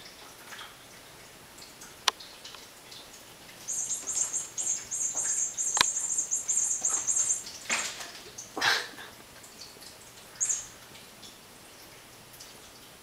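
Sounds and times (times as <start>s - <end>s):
sharp clicks: 5.7s - 6.0s.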